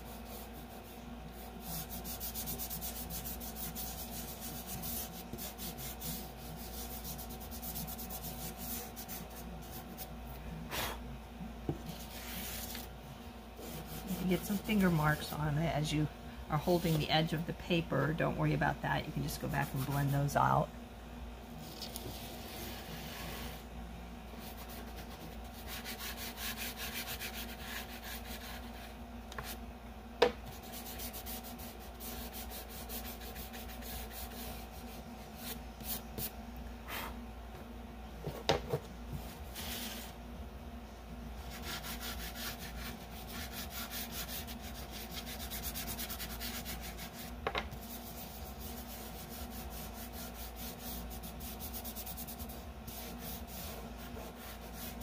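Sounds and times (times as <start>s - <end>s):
chalk pastel rubbing on paper: 0.0s - 10.1s, 11.8s - 12.9s, 13.6s - 15.6s, 21.8s - 23.6s, 24.4s - 29.6s, 30.5s - 36.3s, 39.2s - 40.1s, 41.4s - 55.0s.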